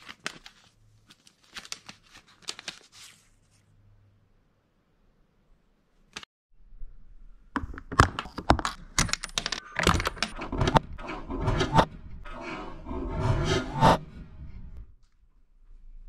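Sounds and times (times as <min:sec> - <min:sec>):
plastic parts clicking and knocking: 0:07.6 - 0:10.9.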